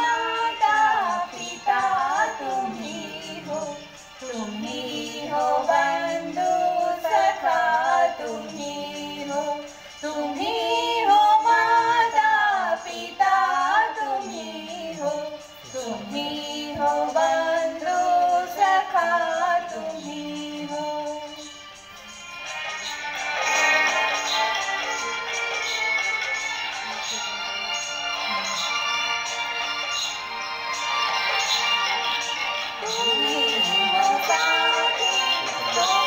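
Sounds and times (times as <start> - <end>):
woman singing: 0.0 - 21.6, 31.5 - 36.0.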